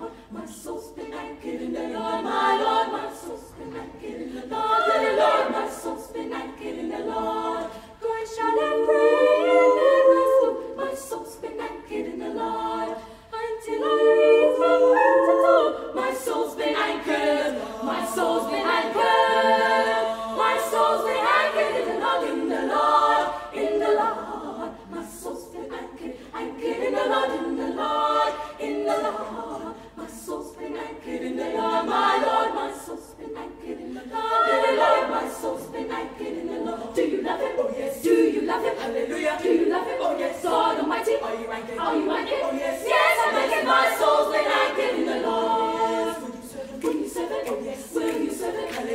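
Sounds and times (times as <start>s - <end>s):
girls' choir singing a cappella: 0.0s - 48.9s.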